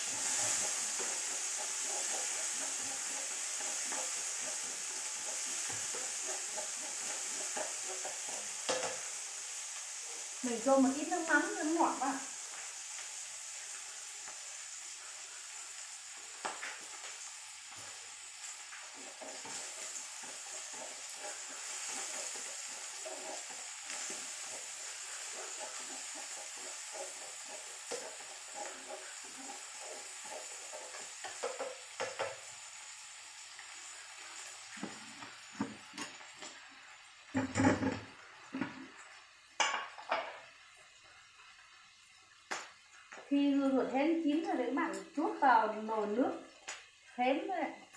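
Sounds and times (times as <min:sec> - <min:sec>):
food sizzling in a frying pan: 0:00.0 - 0:47.9
chopsticks scraping a pan: 0:00.2 - 0:09.3, 0:18.8 - 0:32.3
kitchenware clattering: 0:37.4 - 0:38.8, 0:39.6 - 0:40.5.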